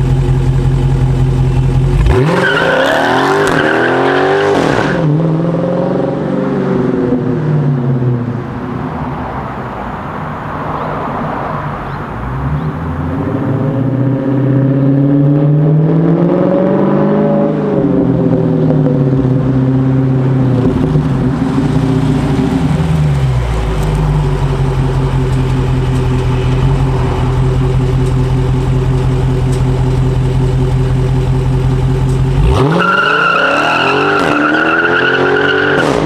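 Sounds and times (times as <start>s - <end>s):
car engine revving: 0.0s - 8.2s, 12.2s - 36.0s
tyre squeal: 32.6s - 35.8s.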